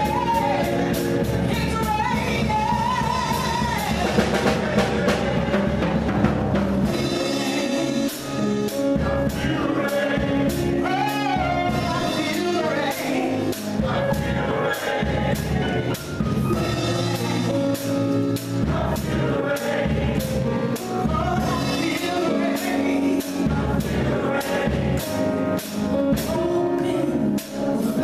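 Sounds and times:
woman singing into microphone: 0:00.0 - 0:05.9, 0:09.4 - 0:17.7
drums: 0:00.0 - 0:28.0.

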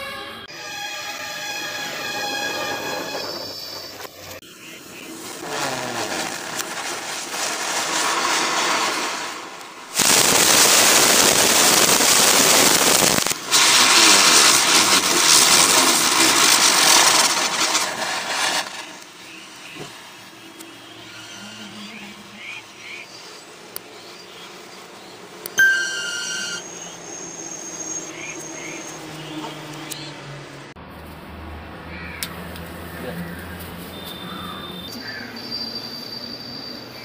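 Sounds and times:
fireworks spraying sparks hissing: 0:00.6 - 0:21.4, 0:25.6 - 0:29.2.

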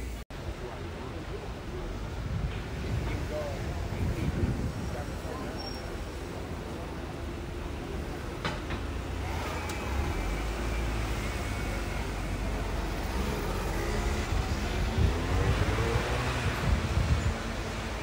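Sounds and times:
vehicle engine accelerating: 0:09.1 - 0:18.0.

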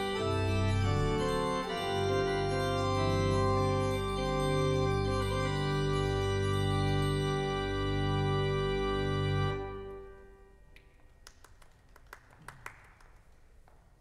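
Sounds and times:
church organ chord: 0:00.0 - 0:10.8.

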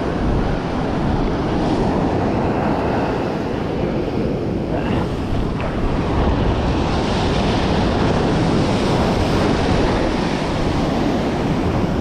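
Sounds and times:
ocean surf washing: 0:00.0 - 0:12.0
wind buffeting microphone: 0:00.0 - 0:12.0.

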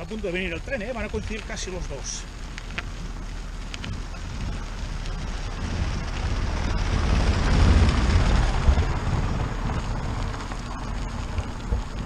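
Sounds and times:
car passing on dirt road: 0:00.0 - 0:12.0
wind buffeting microphone: 0:00.0 - 0:12.0.

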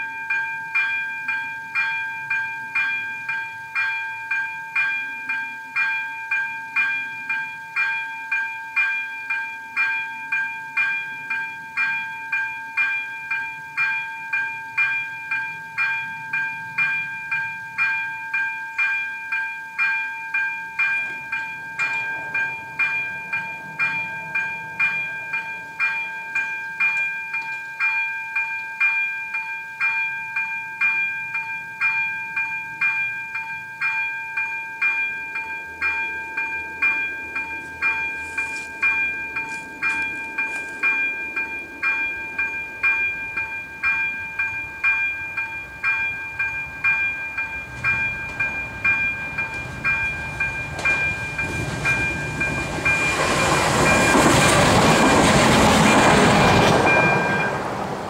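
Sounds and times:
level crossing warning bell: 0:00.0 - 0:58.0.

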